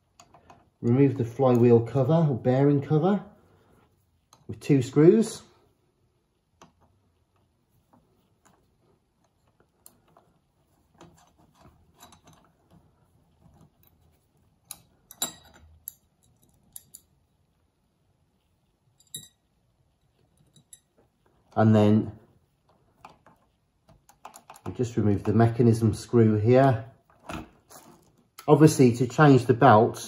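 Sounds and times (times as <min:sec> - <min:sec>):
screwdriver metal clicks and scrapes: 0:08.4 - 0:17.2.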